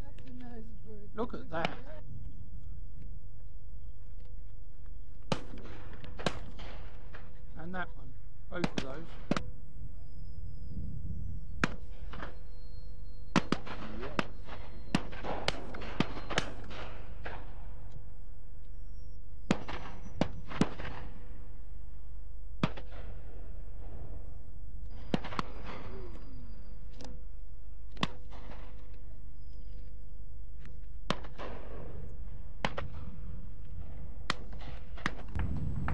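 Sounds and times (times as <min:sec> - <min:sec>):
shotgun shots: 0:05.3 - 0:07.8, 0:08.6 - 0:09.5, 0:13.3 - 0:17.9, 0:19.4 - 0:21.5, 0:22.6 - 0:26.6, 0:27.9 - 0:29.0, 0:31.1 - 0:35.9
steady low rumble: 0:07.0 - 0:12.1, 0:30.1 - 0:35.9.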